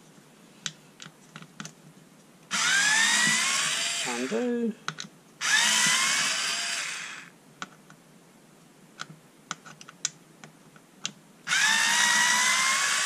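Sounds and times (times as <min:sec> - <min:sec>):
cordless screwdriver whining: 0:02.5 - 0:04.5, 0:05.4 - 0:07.3, 0:11.5 - 0:13.0.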